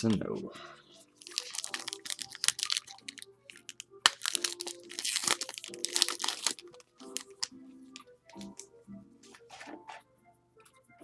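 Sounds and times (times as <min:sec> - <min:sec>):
faint background music: 0:00.0 - 0:11.0
paper wrapper tearing and crinkling: 0:01.2 - 0:08.5
sharp crack: 0:01.3 - 0:08.5.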